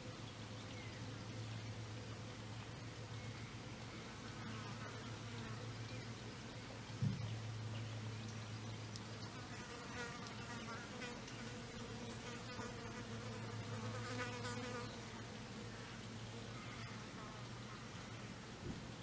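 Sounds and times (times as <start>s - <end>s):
insect buzzing: 9.1s - 15.6s.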